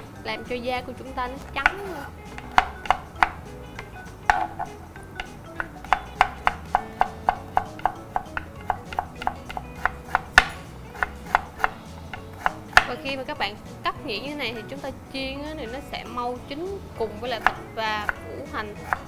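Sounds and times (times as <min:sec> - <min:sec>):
background music: 0:00.0 - 0:19.0
knife chopping on wooden board: 0:01.5 - 0:13.1, 0:17.2 - 0:19.0.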